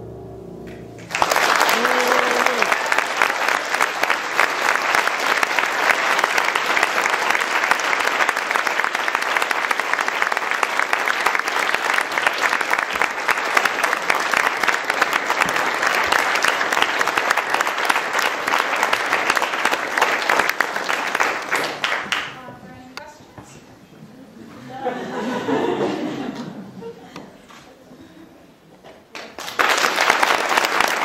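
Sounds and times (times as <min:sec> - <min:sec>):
audience applauding: 0:00.7 - 0:22.4, 0:29.1 - 0:31.0.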